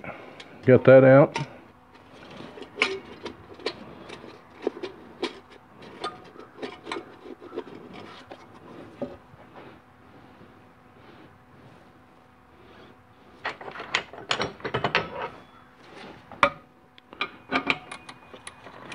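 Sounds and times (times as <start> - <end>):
metal parts clinking and clicking: 1.3 - 8.2, 13.4 - 15.4, 17.2 - 18.9.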